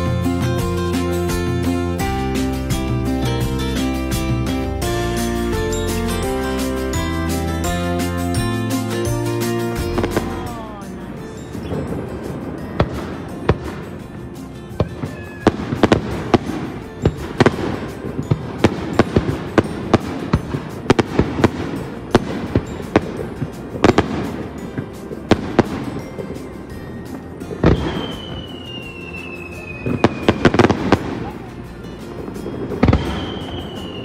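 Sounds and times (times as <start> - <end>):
fireworks bangs and crackles: 0.0 - 34.0
falling firework whistle: 14.8 - 16.0, 27.6 - 31.3, 32.4 - 34.0.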